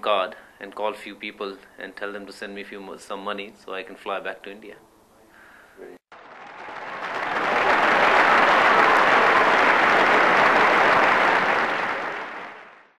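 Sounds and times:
crowd applauding: 0:06.1 - 0:13.0.

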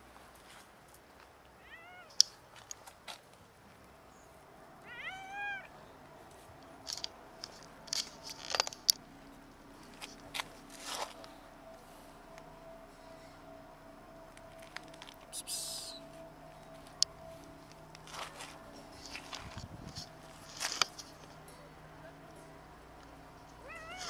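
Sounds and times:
cat meowing: 0:01.6 - 0:02.2, 0:04.8 - 0:05.7, 0:23.6 - 0:24.0.

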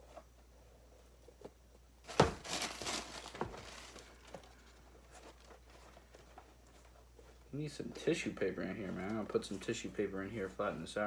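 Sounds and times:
tissue paper crinkling: 0:02.0 - 0:07.4.

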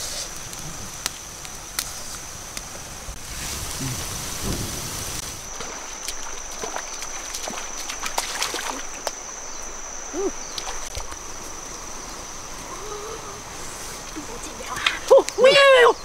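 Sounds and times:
water sloshing and splashing: 0:05.4 - 0:11.6
footsteps in water: 0:05.5 - 0:09.3.

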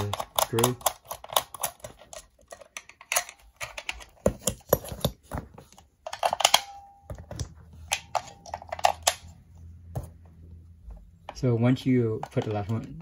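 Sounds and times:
plastic clicks and rattles: 0:00.0 - 0:06.7.

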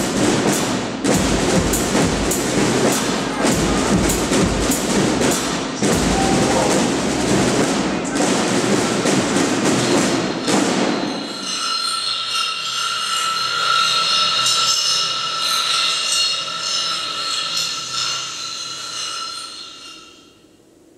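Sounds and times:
snare drums: 0:00.0 - 0:11.2.

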